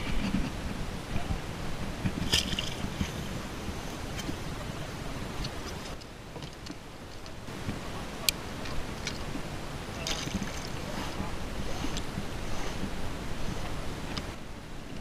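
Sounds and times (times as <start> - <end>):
water against kayak: 0.0 - 15.0
wind on microphone: 0.0 - 15.0
float splashing into water: 9.9 - 11.3.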